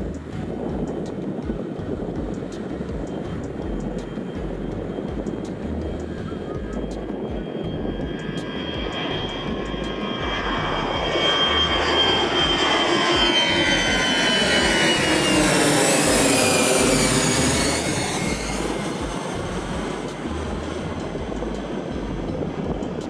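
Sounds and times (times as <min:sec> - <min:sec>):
high fan whine: 0:00.0 - 0:23.0
jet airliner passing overhead: 0:00.0 - 0:23.0.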